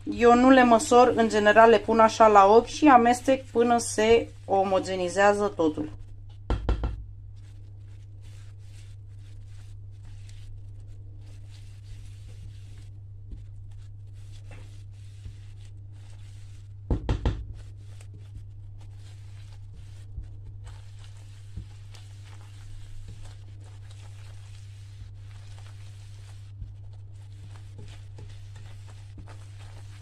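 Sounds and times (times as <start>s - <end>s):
low steady hum: 0.0s - 30.0s
loud knocks: 6.5s - 7.0s.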